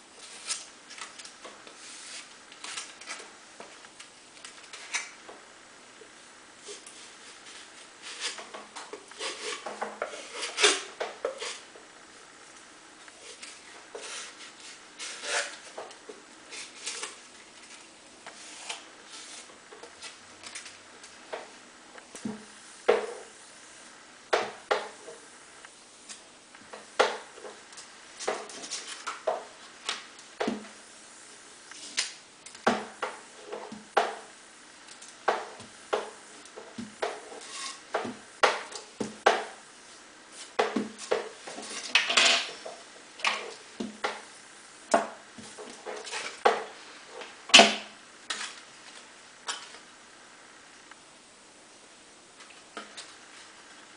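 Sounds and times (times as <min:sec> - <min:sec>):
scraping rustle: 0:00.2 - 0:03.8, 0:06.6 - 0:12.4, 0:13.0 - 0:23.8, 0:26.0 - 0:32.2, 0:35.5 - 0:44.4, 0:45.4 - 0:47.4.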